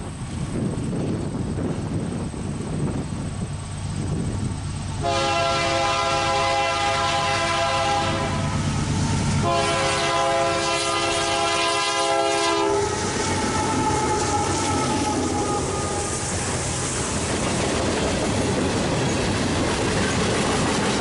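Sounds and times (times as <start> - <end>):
diesel engine rumble: 0.0 - 21.0
locomotive horn blasts: 5.0 - 8.7, 9.4 - 16.3.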